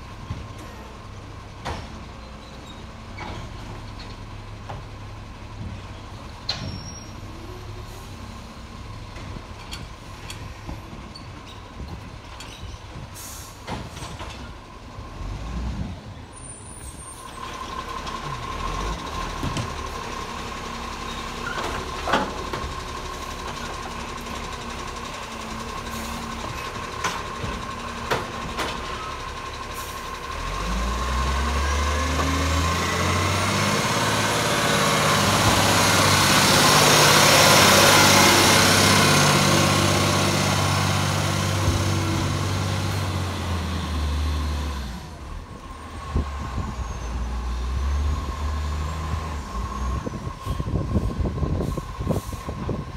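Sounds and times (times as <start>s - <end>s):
diesel truck engine pulling hard: 0.0s - 52.9s.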